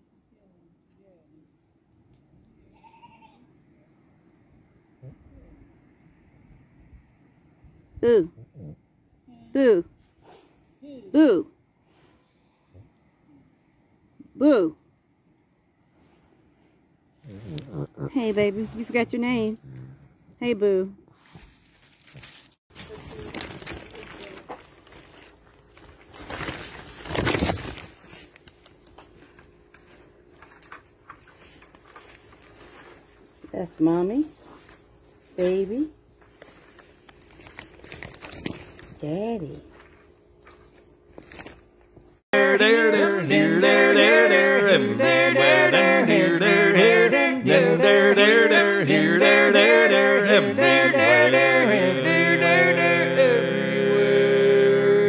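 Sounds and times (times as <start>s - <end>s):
rustling and crunching in straw: 21.1s - 33.6s, 34.3s - 35.4s, 36.0s - 42.2s
person singing with music: 42.4s - 55.0s.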